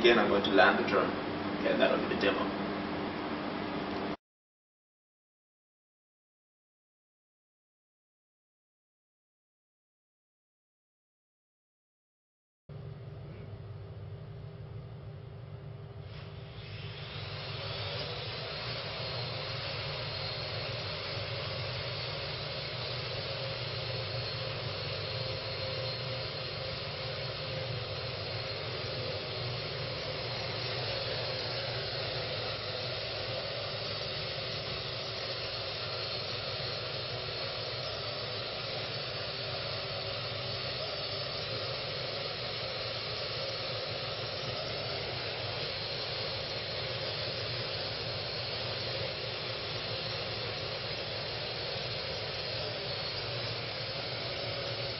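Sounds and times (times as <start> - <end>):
quadcopter propellers whirring: 16.4 - 54.9.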